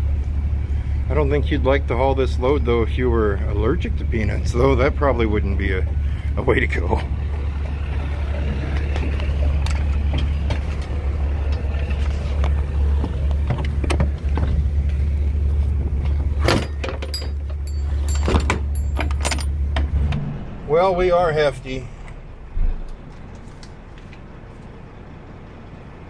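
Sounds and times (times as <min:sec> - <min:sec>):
low rumble: 0:00.0 - 0:25.8
metal doors clanking shut: 0:08.3 - 0:11.9, 0:16.1 - 0:21.3.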